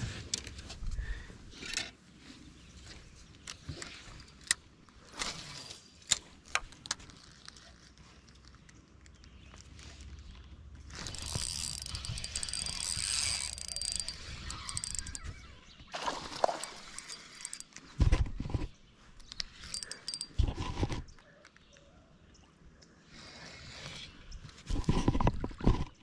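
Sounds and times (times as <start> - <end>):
fishing reel gear clicks: 10.9 - 15.6, 16.3 - 17.8, 19.2 - 20.5.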